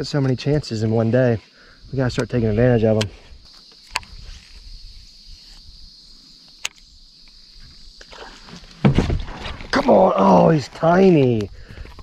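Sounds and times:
high-pitched insect drone: 0:00.0 - 0:08.8, 0:09.5 - 0:12.0
sharp clicks: 0:06.4 - 0:07.4.

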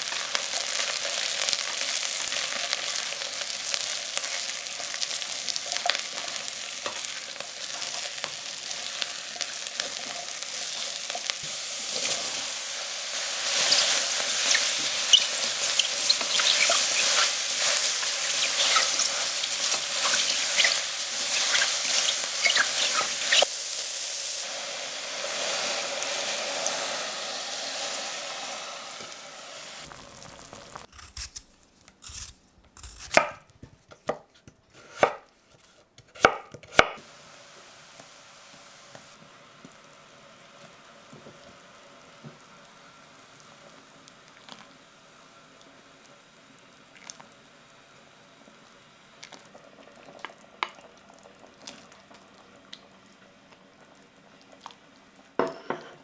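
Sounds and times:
mushrooms sizzling in oil: 0:00.0 - 0:31.0, 0:37.0 - 0:55.7
faint steady hiss: 0:00.0 - 0:33.7, 0:36.9 - 0:56.0
wooden spatula stirring: 0:13.4 - 0:23.5.

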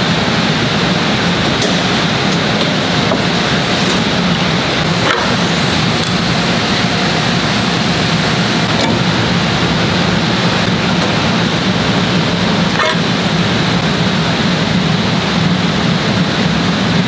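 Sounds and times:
thin high whine: 0:00.0 - 0:08.9
hydraulic pump hum and hiss: 0:00.0 - 0:15.4
sharp clicks: 0:04.8 - 0:08.9.

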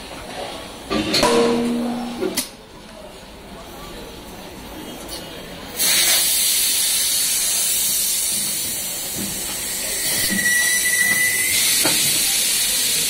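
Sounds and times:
compressed air hissing: 0:05.8 - 0:10.3
short high whistle: 0:09.8 - 0:11.9.

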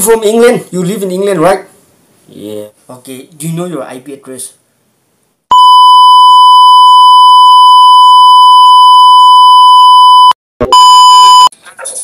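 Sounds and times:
high-pitched censor beep: 0:05.5 - 0:11.5.

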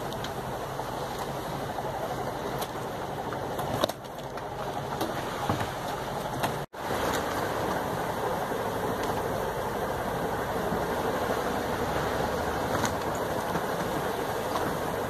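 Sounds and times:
wind and sea water rushing: 0:00.0 - 0:15.0.

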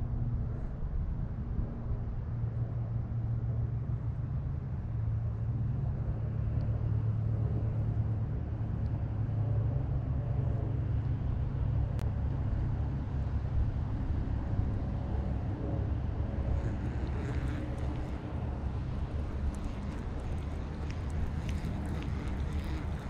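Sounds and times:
low rumbling hum: 0:00.0 - 0:23.0.

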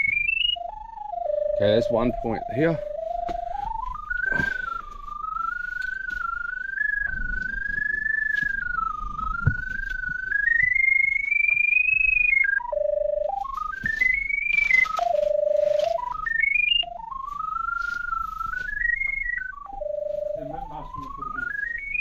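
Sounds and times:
electronic locator tone: 0:00.0 - 0:22.0
rustling: 0:13.2 - 0:22.0.

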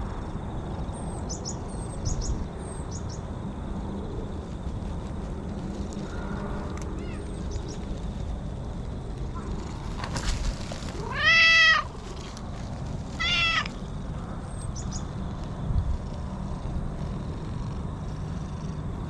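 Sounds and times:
cat meowing: 0:07.0 - 0:07.4, 0:11.0 - 0:11.9, 0:13.1 - 0:13.8.

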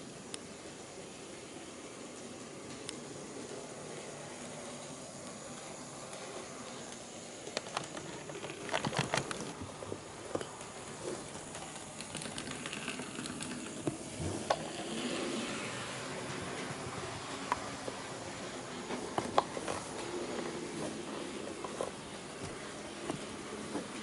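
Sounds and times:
wheels clicking over rail joints: 0:02.1 - 0:24.0
model train motor whirring: 0:10.9 - 0:19.0.

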